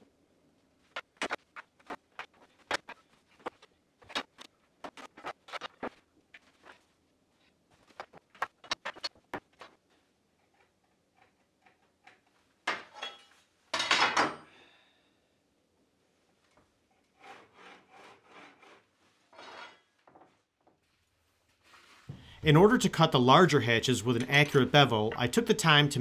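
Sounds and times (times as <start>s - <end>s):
scraping on plywood floor: 17.2s - 20.3s.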